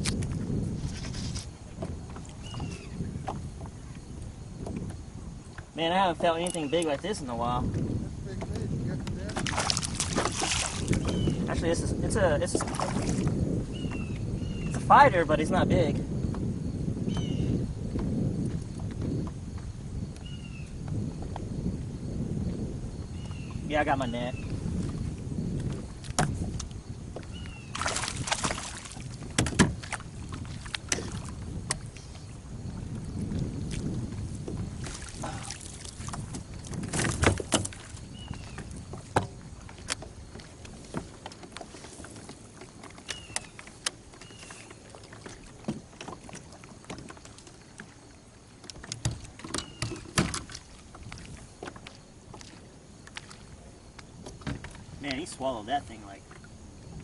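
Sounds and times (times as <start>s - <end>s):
knocks against kayak: 7.7s - 11.3s, 25.6s - 31.9s, 36.0s - 40.1s, 45.3s - 47.2s, 48.7s - 52.5s, 54.2s - 54.8s
fish splashing at the surface: 9.4s - 11.3s, 12.6s - 13.3s, 27.7s - 29.1s, 34.8s - 36.2s
gear knocking against plastic hull: 29.3s - 29.8s.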